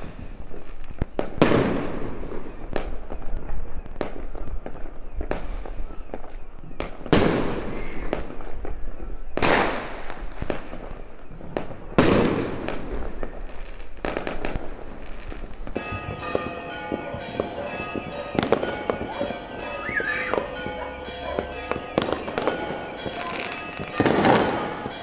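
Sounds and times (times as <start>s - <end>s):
firework pops and crackles: 0.0s - 16.5s
fireworks booming: 0.0s - 25.0s
church bells ringing: 14.3s - 25.0s.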